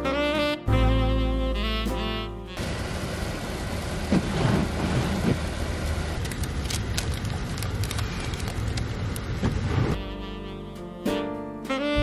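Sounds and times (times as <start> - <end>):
car road and engine noise: 2.6 - 10.0.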